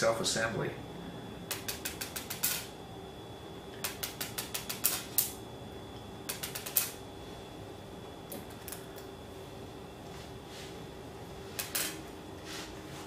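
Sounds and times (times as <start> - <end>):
magnet balls clicking on stone: 1.5 - 2.7, 3.8 - 5.4, 6.3 - 7.0.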